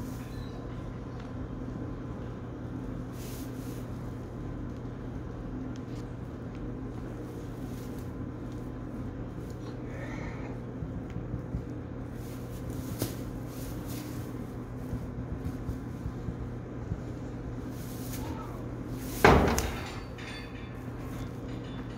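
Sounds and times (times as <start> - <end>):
rustling in straw: 3.1 - 4.0, 7.3 - 9.5, 12.0 - 16.1, 17.6 - 19.3.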